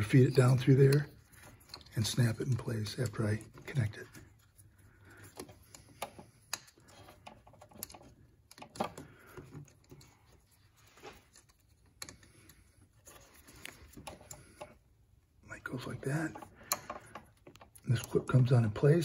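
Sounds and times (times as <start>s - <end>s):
faint rustling of wire: 0.0s - 19.0s.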